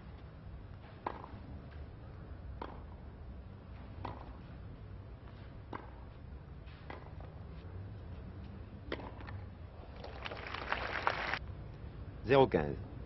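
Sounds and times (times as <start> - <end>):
steady low hum: 0.0 - 10.0
tennis racket hitting ball: 1.0 - 1.3, 4.0 - 4.4, 5.7 - 6.0, 6.9 - 7.2.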